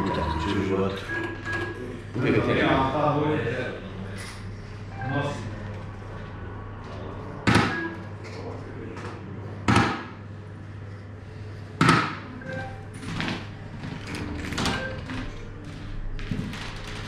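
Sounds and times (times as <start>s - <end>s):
darts striking dartboard: 9.7s - 10.2s.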